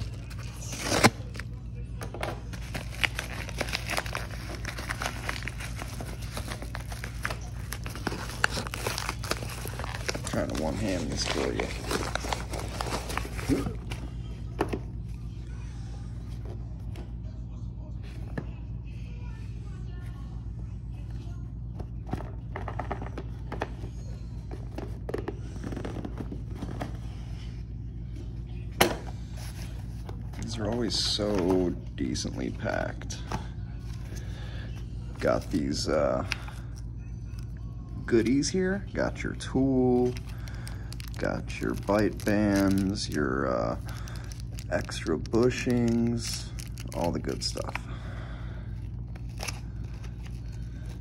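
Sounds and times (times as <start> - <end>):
steady low hum: 0.0 - 51.0
paper mailer tearing open: 0.2 - 1.4.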